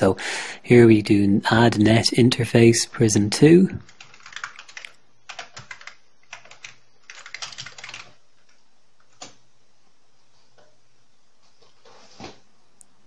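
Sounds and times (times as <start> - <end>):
keyboard keys clicking: 4.0 - 8.2.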